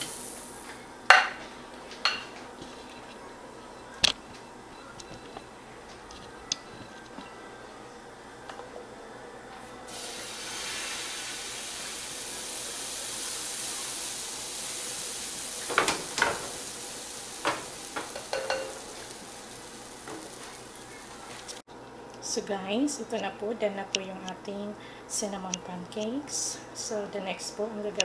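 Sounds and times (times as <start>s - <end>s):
batter sizzling on grill pan: 0.0s - 0.7s, 9.9s - 21.6s.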